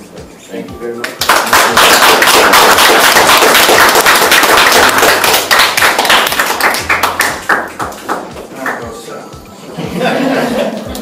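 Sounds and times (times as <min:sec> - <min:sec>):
audience applauding: 0:01.1 - 0:08.9.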